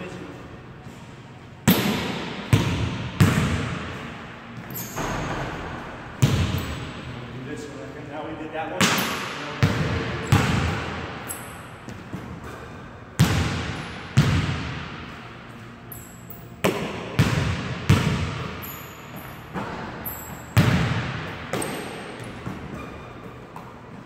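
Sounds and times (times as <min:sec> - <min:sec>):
basketball bouncing on hardwood: 0:06.2 - 0:06.8.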